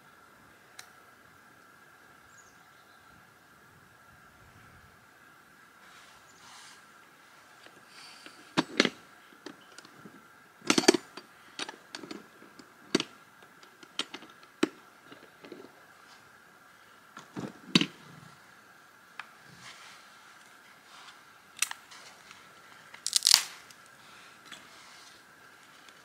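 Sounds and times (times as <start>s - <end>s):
twigs and firewood snapping: 22.9s - 23.9s.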